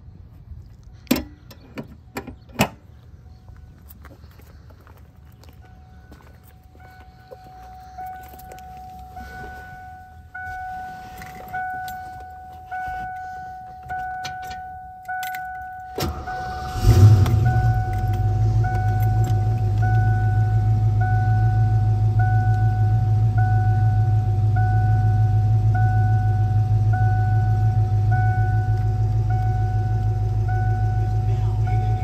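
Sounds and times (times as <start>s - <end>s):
car engine starting and idling: 0.0s - 32.0s
car warning chime dinging: 5.6s - 32.0s.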